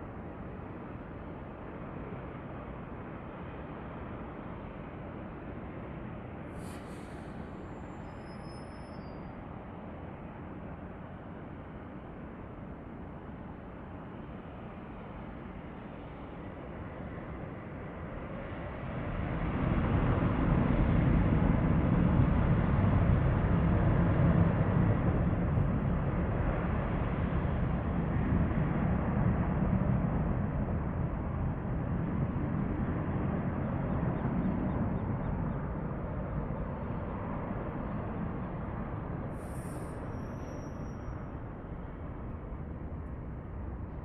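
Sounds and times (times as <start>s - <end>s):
distant jet engines rumbling: 19.0s - 44.0s.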